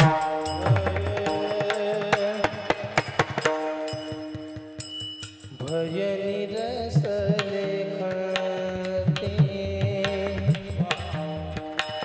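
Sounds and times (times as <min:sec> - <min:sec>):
hand drum: 0:00.0 - 0:05.4
small hand cymbals clinking: 0:00.0 - 0:07.0.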